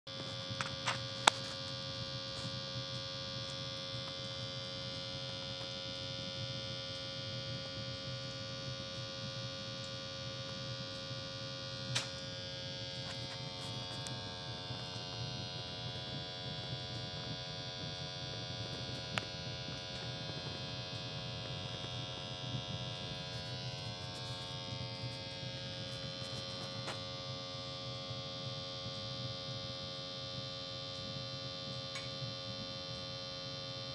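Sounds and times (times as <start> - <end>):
burning wood popping: 0.3 - 6.1, 18.0 - 27.7
stove fire draft rushing: 13.0 - 27.7.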